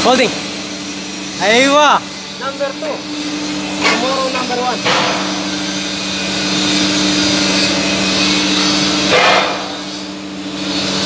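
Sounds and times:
drill machine humming: 1.4s - 9.8s.

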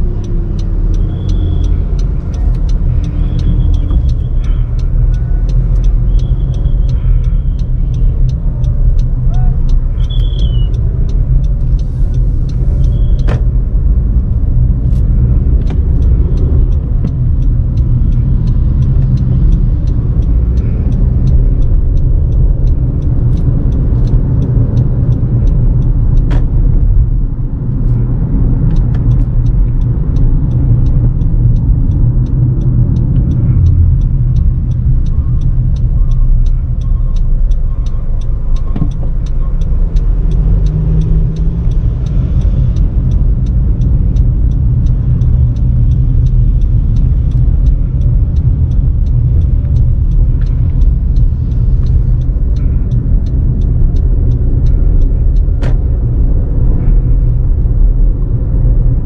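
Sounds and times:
car engine and tyre rumble: 0.0s - 59.0s
faint ticks: 0.2s - 27.1s, 27.8s - 58.3s.

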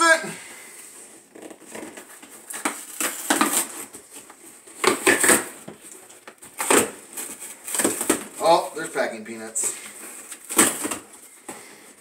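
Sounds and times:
cardboard box tape ripping: 1.3s - 8.5s, 10.2s - 11.2s.

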